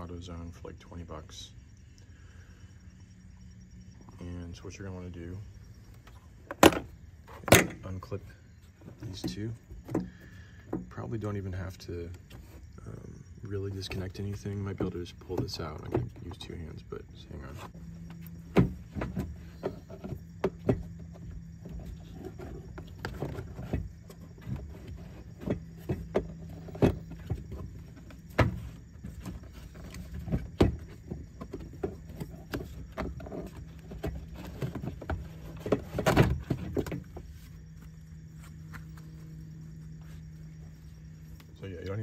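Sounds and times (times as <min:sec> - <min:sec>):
air filter rattling: 0:13.7 - 0:41.4.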